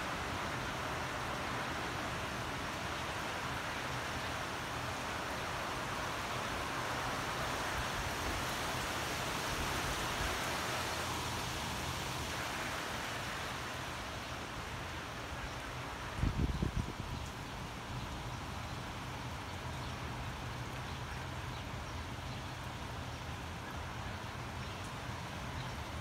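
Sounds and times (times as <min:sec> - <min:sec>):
rain falling on foliage: 0:00.0 - 0:26.0.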